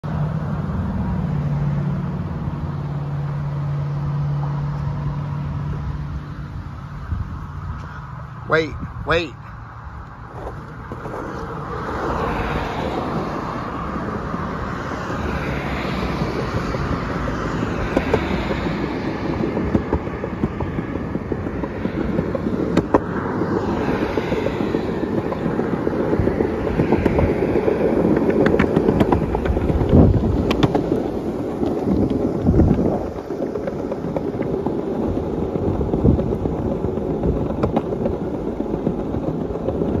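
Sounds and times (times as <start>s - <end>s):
skateboard wheels rolling on concrete: 0.0s - 40.0s
skateboard wheels clicking over joints: 9.6s - 40.0s.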